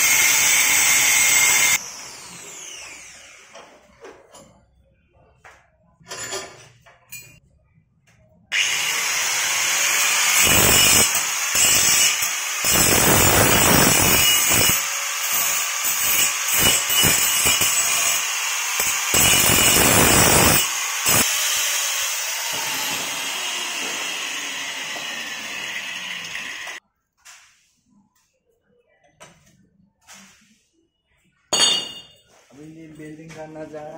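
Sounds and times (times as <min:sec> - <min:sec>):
angle grinder cutting metal: 0:00.0 - 0:03.5, 0:08.5 - 0:26.8.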